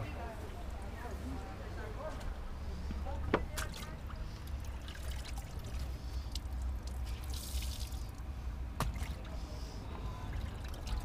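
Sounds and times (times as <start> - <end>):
water dripping and trickling: 3.5 - 9.4, 10.3 - 11.0.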